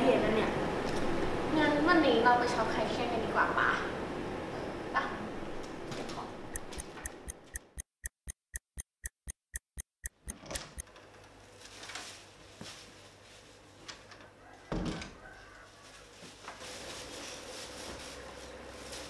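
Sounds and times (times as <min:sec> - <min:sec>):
clock ticking: 0:06.5 - 0:10.8.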